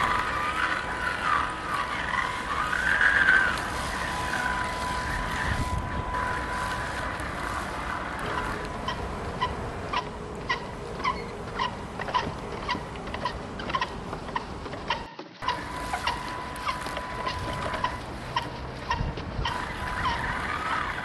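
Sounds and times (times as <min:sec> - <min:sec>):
wind rushing over microphone: 0:00.0 - 0:11.0, 0:15.6 - 0:21.0
thin steady whine: 0:00.0 - 0:21.0.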